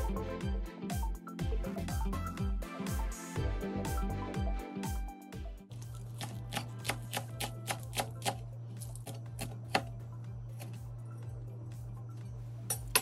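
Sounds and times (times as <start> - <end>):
background music: 0.0 - 13.0
steady low hum: 5.7 - 13.0.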